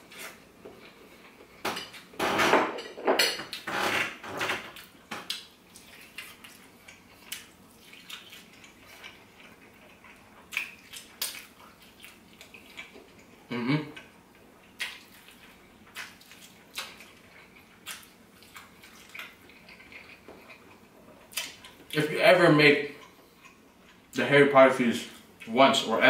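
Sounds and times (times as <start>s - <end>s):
chewing chicken: 4.7s - 24.3s.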